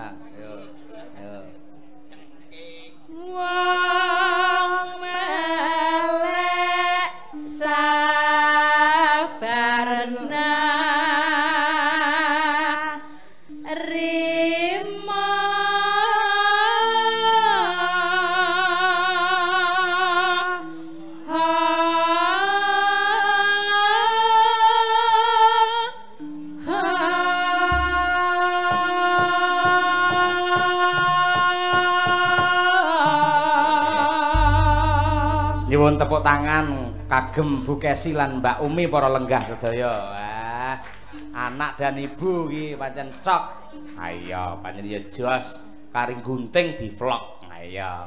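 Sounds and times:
women singing a duet: 3.1s - 39.0s
gamelan accompaniment: 3.1s - 42.5s, 43.6s - 46.5s
low drum strokes: 34.3s - 39.3s.

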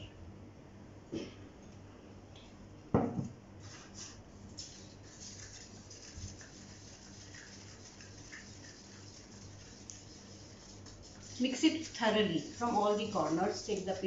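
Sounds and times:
jug knocking on table: 3.0s - 3.3s
stick stirring in plastic cup: 3.6s - 14.0s.

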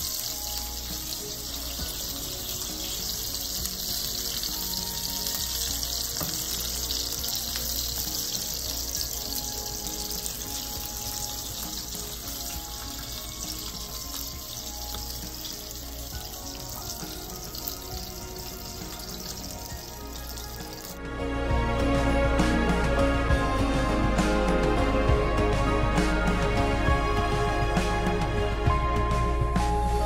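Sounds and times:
steady hiss: 0.0s - 21.0s
music playing: 0.0s - 30.0s.

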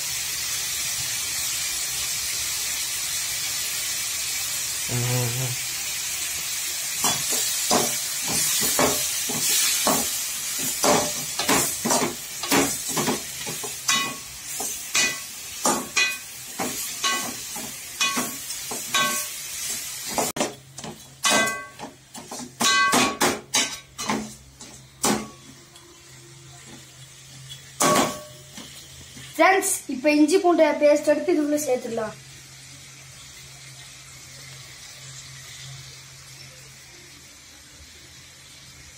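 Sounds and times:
meat sizzling in oil: 0.0s - 38.9s.

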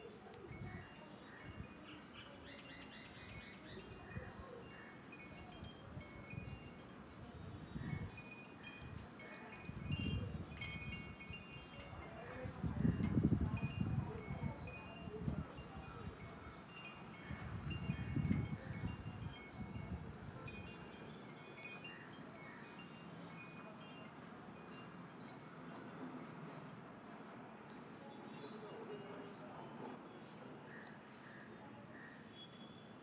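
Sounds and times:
wind chimes tinkling: 0.4s - 26.0s.

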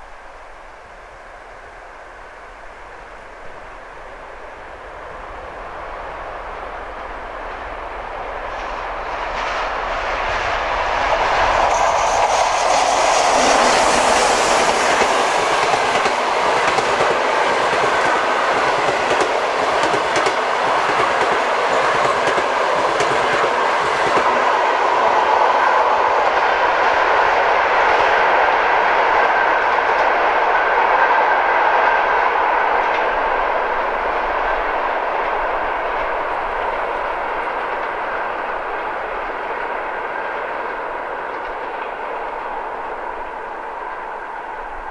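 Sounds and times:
diesel locomotive passing: 1.6s - 44.9s
wheels clacking over rail joints: 11.6s - 24.4s.

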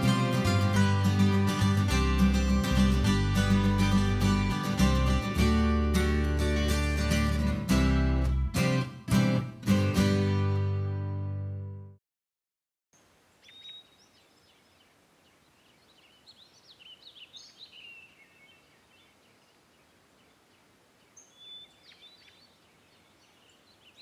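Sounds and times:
soft outdoor hiss: 13.0s - 24.0s
songbirds chirping and whistling: 13.4s - 24.0s.

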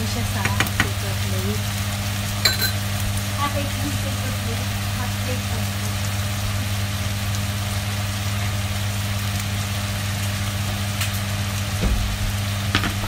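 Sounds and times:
meat sizzling in a frying pan: 0.0s - 13.0s
steady low hum: 0.0s - 13.0s
knock: 11.8s - 13.0s.

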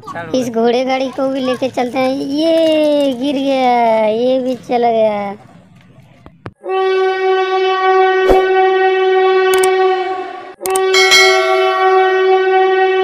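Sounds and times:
loud train horn: 6.6s - 13.0s
sharp clicks: 10.7s - 10.9s.

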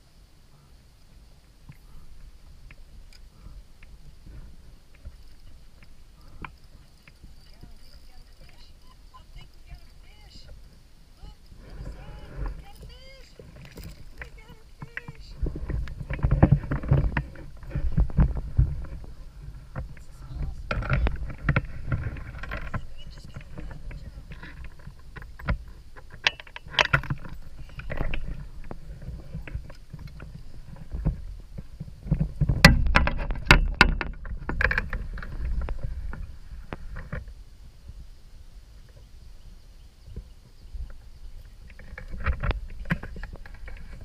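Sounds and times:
knocks and rattles in kayak: 1.7s - 10.8s, 11.6s - 37.4s, 40.0s - 44.0s.

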